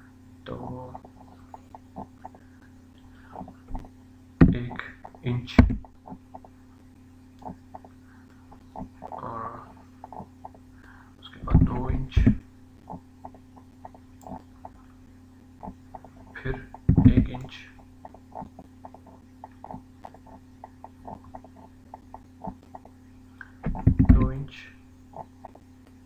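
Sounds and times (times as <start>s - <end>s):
electrical hum: 0.0s - 26.0s.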